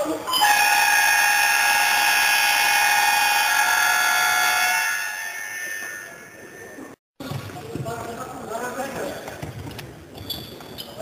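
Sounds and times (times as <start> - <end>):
arena buzzer horn: 0.4 - 6.0.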